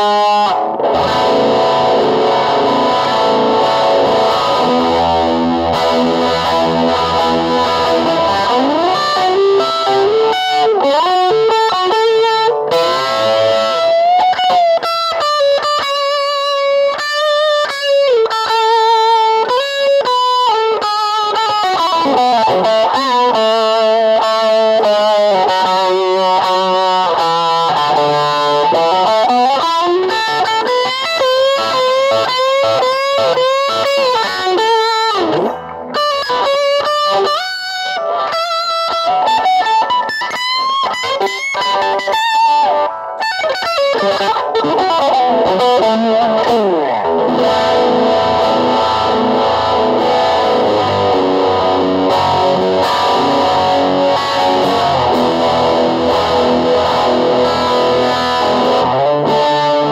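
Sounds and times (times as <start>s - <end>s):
electric guitar lead melody: 0.0s - 59.9s.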